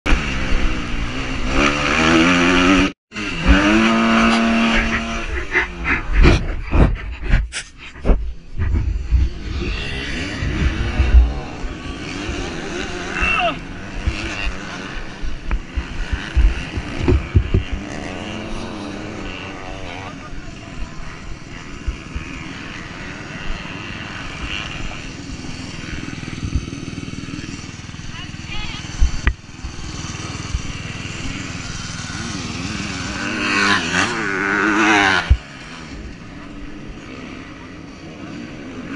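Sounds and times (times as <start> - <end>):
motocross bike engine revving: 0.1 - 38.9
heavy thumps and knocks of crash: 16.4 - 17.8.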